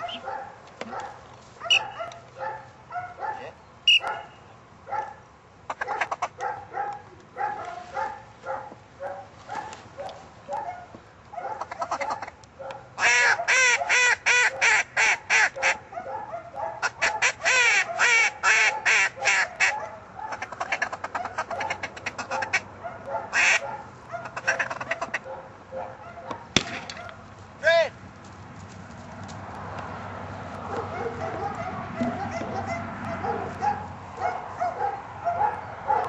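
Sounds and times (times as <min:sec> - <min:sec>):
duck quacking: 0:11.5 - 0:12.3, 0:13.0 - 0:15.8, 0:16.8 - 0:22.7, 0:23.3 - 0:25.3.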